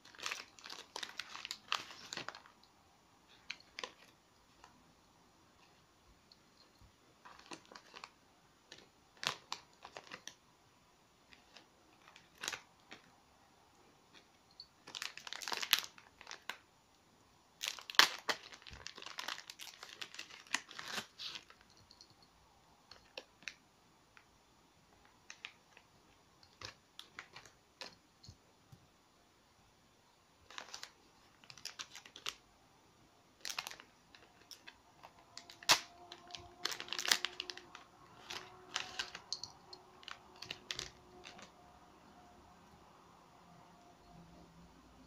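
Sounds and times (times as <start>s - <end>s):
plastic bags crinkling: 0.0s - 2.6s, 3.3s - 4.7s, 6.6s - 10.4s, 11.3s - 13.1s, 14.5s - 16.6s, 17.6s - 22.0s, 25.0s - 25.8s, 26.4s - 28.0s, 30.4s - 32.4s, 33.4s - 41.6s.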